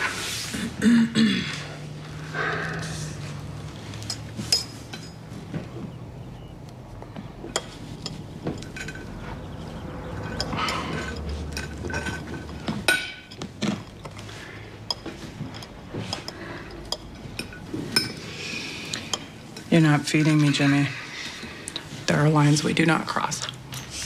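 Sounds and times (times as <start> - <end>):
fork clinking and scraping plate: 7.5 - 14.2.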